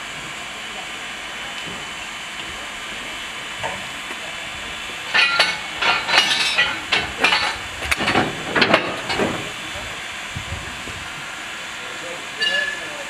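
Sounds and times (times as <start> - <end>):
steam locomotive hissing: 0.0 - 13.0
metallic clanks: 5.1 - 9.5.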